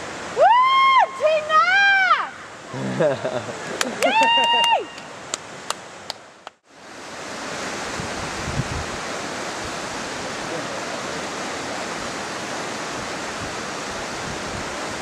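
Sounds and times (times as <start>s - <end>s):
wind buffeting microphone: 7.6s - 10.3s, 12.0s - 15.0s.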